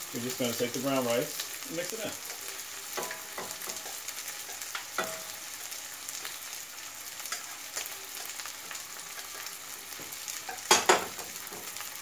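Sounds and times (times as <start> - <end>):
fish sizzling in a skillet: 0.0 - 12.0
metal cookware clanks: 3.0 - 5.4, 10.5 - 11.7.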